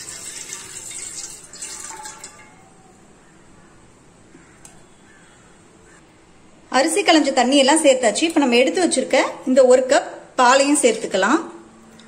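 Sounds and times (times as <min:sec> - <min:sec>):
water poured into metal pot: 0:00.0 - 0:02.6.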